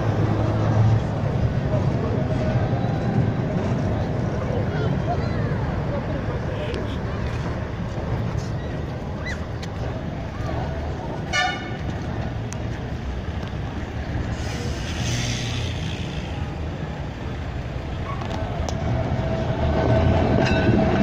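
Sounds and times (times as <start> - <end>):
tram rumbling on street track: 0.0 - 21.0
tram horn toot: 11.2 - 11.9.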